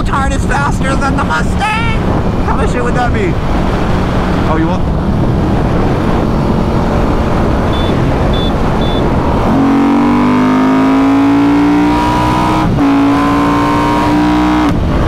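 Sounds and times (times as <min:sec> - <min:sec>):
wind rushing: 0:00.0 - 0:15.0
motorcycle engine accelerating: 0:03.3 - 0:15.0.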